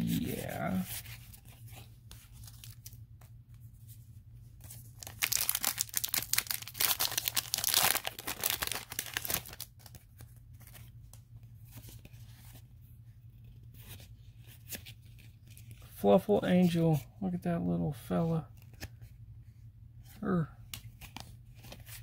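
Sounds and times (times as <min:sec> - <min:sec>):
foil wrapper tearing and crinkling: 0:05.0 - 0:10.0.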